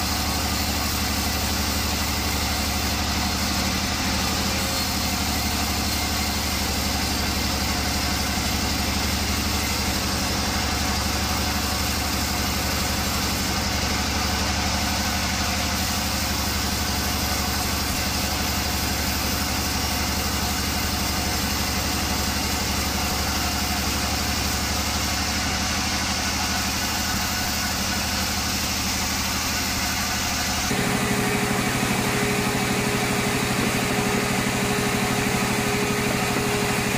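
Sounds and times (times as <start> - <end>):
handheld power tool whine: 15.4 - 36.9
band sawmill humming: 30.5 - 36.9.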